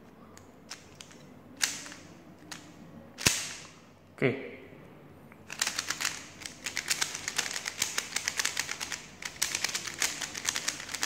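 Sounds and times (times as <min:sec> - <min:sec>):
puzzle cube plastic clicks: 0:00.7 - 0:03.6, 0:05.5 - 0:11.0.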